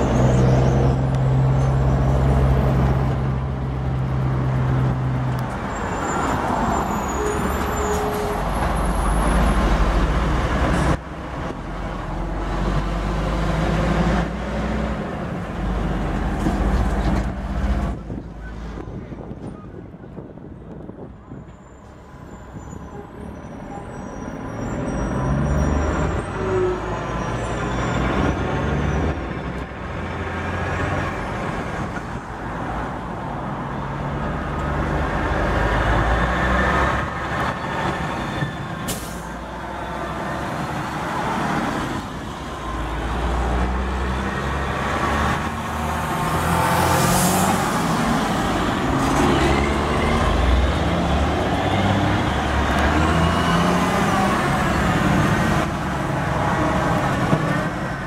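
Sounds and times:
diesel trucks driving past: 0:00.0 - 0:58.0
air brake hiss: 0:38.9 - 0:39.4.

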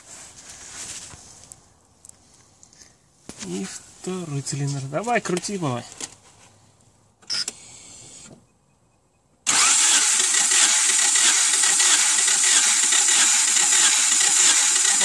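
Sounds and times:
starter motor cranking engine: 0:09.5 - 0:15.0.

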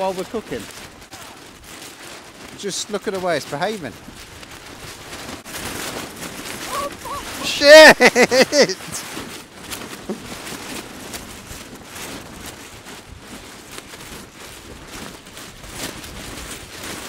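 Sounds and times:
tarp flapping and snapping: 0:00.0 - 0:17.0
strong gusting wind: 0:03.9 - 0:09.7.

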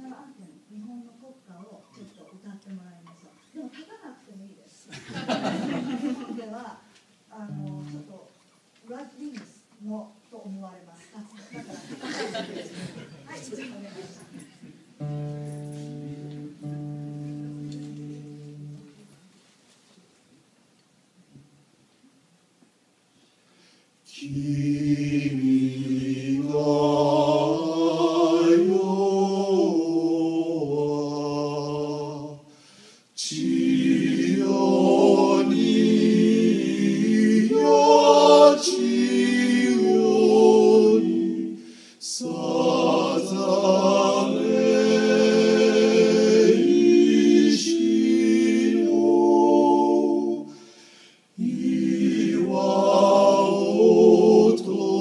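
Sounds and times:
male vocal quartet singing: 0:24.1 - 0:55.0.

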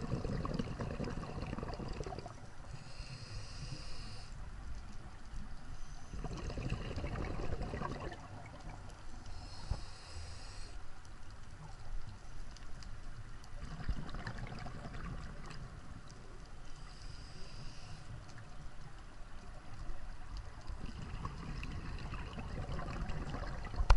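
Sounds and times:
gurgling exhaled bubbles: 0:00.0 - 0:02.4, 0:06.1 - 0:08.8, 0:13.6 - 0:15.8, 0:20.6 - 0:23.9
low rumble of water: 0:00.0 - 0:23.9
regulator hiss: 0:02.7 - 0:04.4, 0:09.3 - 0:10.9, 0:16.6 - 0:18.2.

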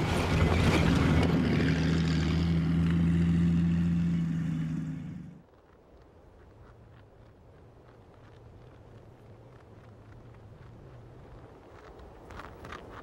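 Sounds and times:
vehicle tracks rattling: 0:00.0 - 0:05.4
tracked vehicle engine running: 0:00.0 - 0:05.5.

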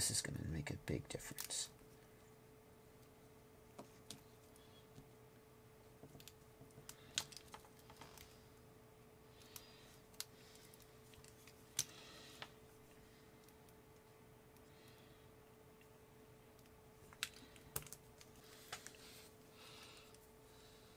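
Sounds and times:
faint steady hum: 0:00.0 - 0:20.9
small clicks and taps: 0:06.0 - 0:08.3.

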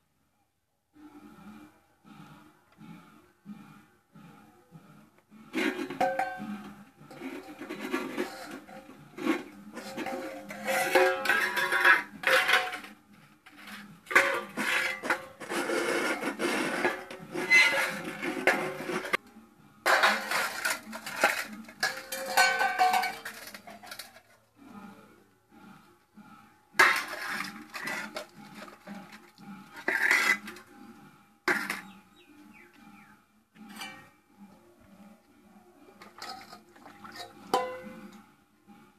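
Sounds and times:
metal bowls and plates clattering: 0:05.6 - 0:19.2, 0:19.8 - 0:24.4, 0:26.8 - 0:30.8, 0:31.5 - 0:32.0, 0:33.6 - 0:34.2, 0:36.0 - 0:38.2.

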